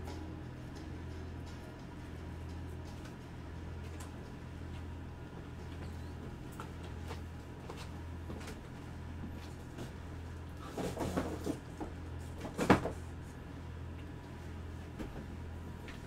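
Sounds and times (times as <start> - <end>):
steady low hum: 0.0 - 16.0
small knocks and rustles: 10.6 - 13.0.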